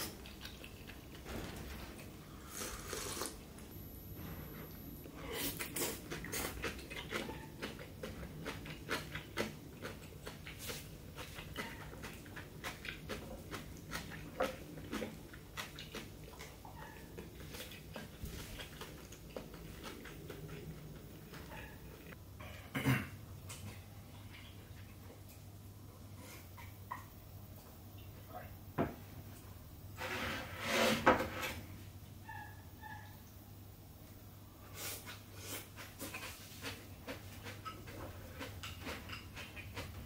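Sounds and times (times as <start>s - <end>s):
person chewing food: 2.4s - 3.4s, 5.0s - 22.2s, 35.0s - 40.0s
slurp from a bowl: 2.4s - 3.4s.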